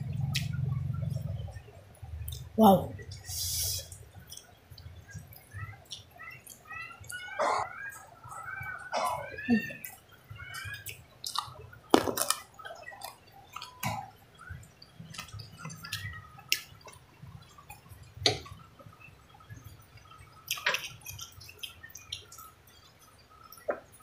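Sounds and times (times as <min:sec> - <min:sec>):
wet chewing: 0:03.1 - 0:18.6, 0:19.3 - 0:24.0.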